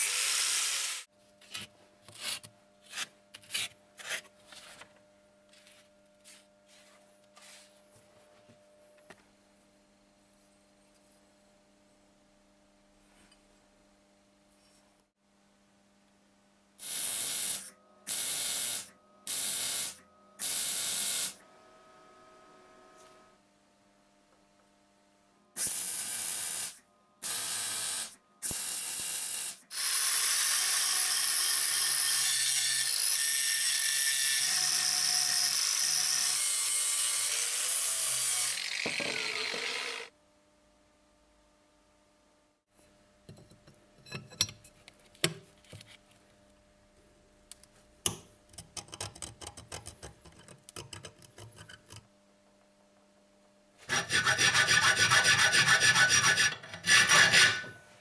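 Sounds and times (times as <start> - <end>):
electric arc welding: 0.0 - 1.1, 16.8 - 21.4, 25.6 - 40.1.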